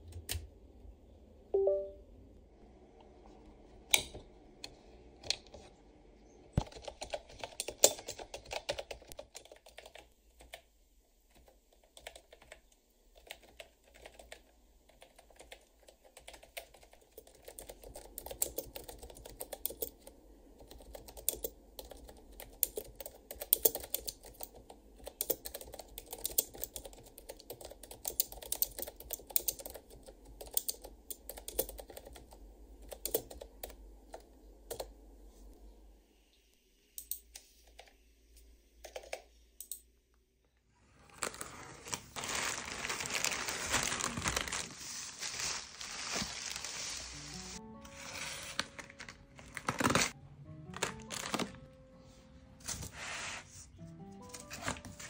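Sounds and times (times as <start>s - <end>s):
keyboard typing: 6.6s - 10.7s, 11.3s - 34.9s, 38.8s - 39.8s.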